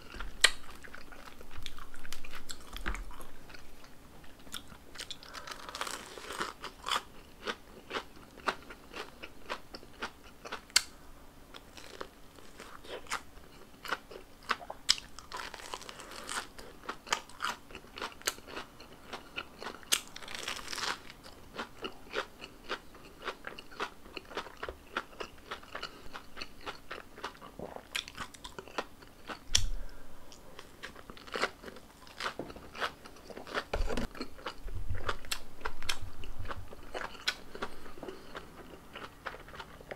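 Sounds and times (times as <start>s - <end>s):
crunching fried crust: 4.6s - 10.9s, 11.6s - 27.4s, 30.8s - 35.2s
chewing: 11.6s - 39.9s.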